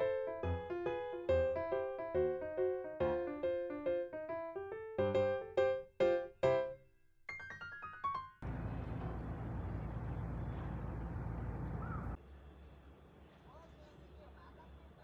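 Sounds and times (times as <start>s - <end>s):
outdoor background noise: 8.4s - 15.0s.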